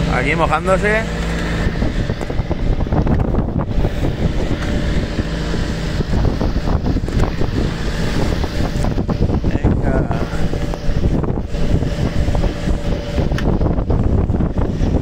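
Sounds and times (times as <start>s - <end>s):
low engine drone: 0.0s - 15.0s
waves splashing against hull: 0.0s - 15.0s
wind buffeting microphone: 0.0s - 15.0s.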